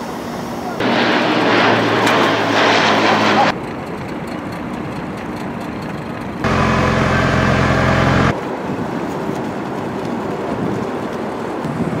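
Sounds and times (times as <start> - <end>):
outboard motor running: 4.3 - 8.4.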